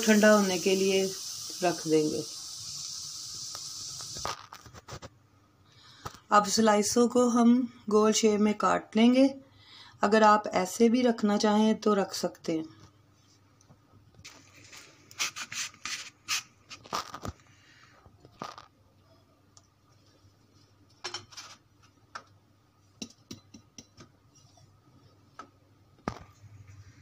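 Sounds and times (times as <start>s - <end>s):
cup rim scraping bread: 15.1s - 17.2s.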